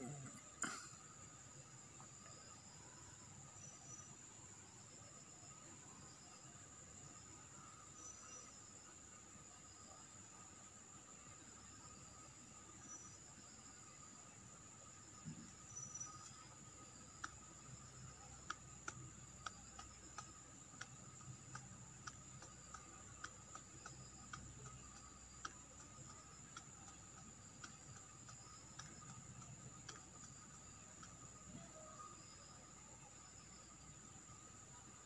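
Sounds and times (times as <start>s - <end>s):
faint irregular ticks: 12.7s - 35.0s.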